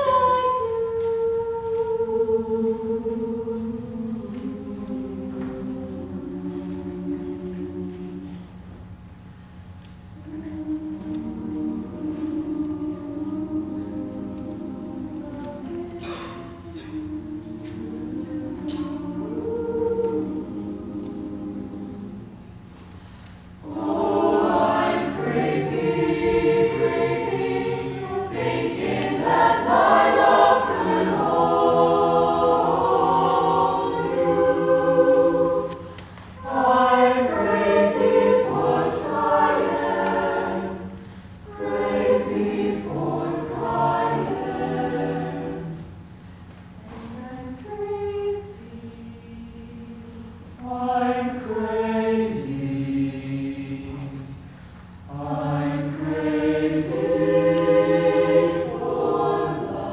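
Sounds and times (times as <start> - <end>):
mixed choir singing: 0.0 - 8.6, 10.2 - 22.5, 23.6 - 46.0, 46.8 - 54.4, 55.1 - 59.9.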